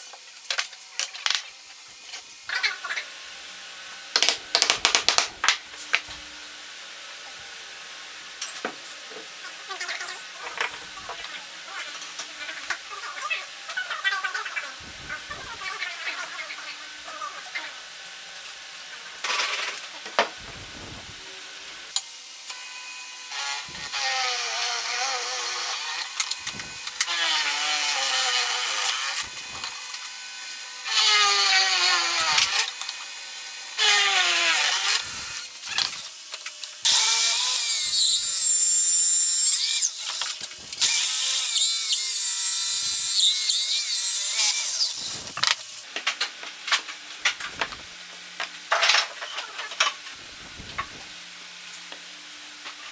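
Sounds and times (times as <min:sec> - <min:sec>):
drill press boring into wood: 0:22.5 - 0:36.1, 0:36.8 - 0:45.6, 0:47.2 - 0:48.0, 0:50.1 - 0:51.2.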